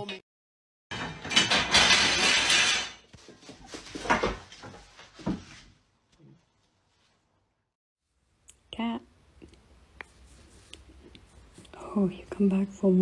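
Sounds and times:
slats clattering on wooden floor: 0:00.9 - 0:03.1.

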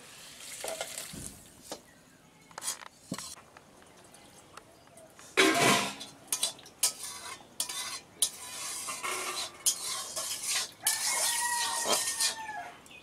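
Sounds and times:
metal utensil scraping a pot: 0:02.6 - 0:03.4, 0:05.4 - 0:12.6.

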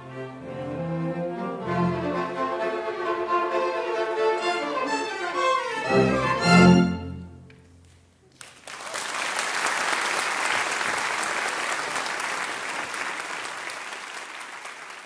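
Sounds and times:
string orchestra chord: 0:00.0 - 0:07.6
audience applause: 0:08.3 - 0:15.0.

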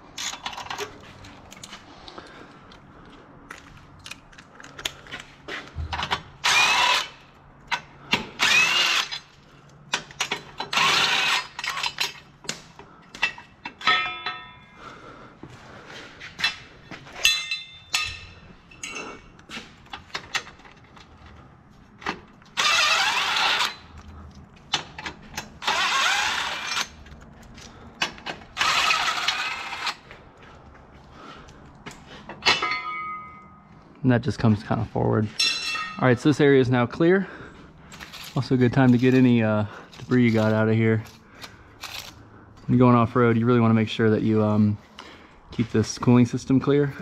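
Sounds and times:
metallic clicks of tools and hardware: 0:00.1 - 0:01.8, 0:03.5 - 0:05.3, 0:06.9 - 0:08.3, 0:09.0 - 0:14.8, 0:16.4 - 0:30.0
cordless power tool running: 0:08.4 - 0:09.1, 0:22.6 - 0:23.8, 0:25.6 - 0:26.8.

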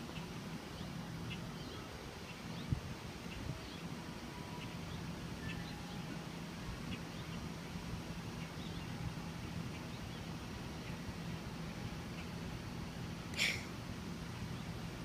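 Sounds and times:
steady low hum: 0:00.0 - 0:15.0
faint bird chirps: 0:00.1 - 0:06.2.

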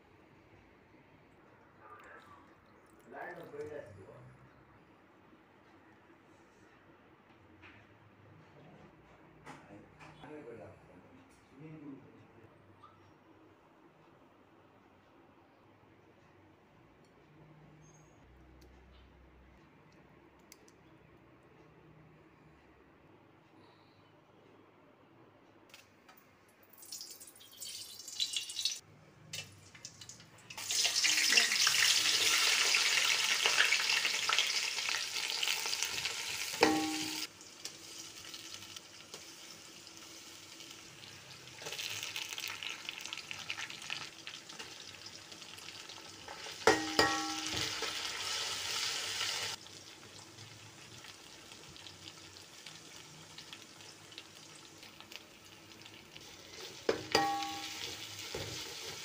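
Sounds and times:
onions sizzling in oil: 0:30.6 - 0:59.0
metal spoon clinking on pot: 0:36.5 - 0:37.3, 0:46.6 - 0:47.9, 0:56.9 - 0:58.4.

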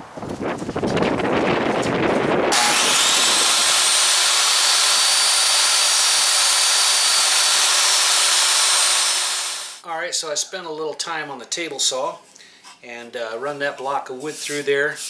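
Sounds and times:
table saw whining: 0:02.5 - 0:09.8
wood rubbing on saw table: 0:02.5 - 0:09.8.

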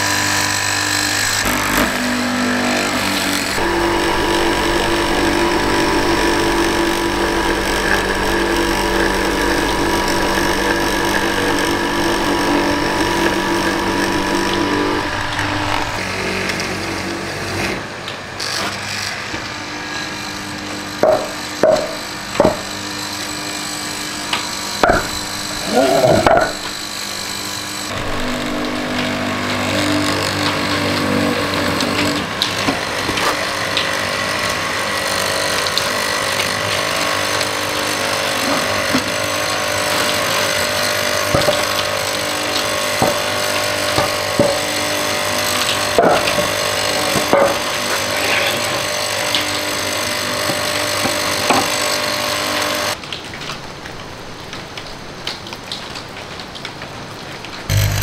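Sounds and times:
mortiser motor hum: 0:00.0 - 0:17.8, 0:18.6 - 0:53.0, 0:57.7 - 0:58.0
chisel knocking and cracking wood: 0:21.0 - 0:22.7, 0:24.8 - 0:25.2.

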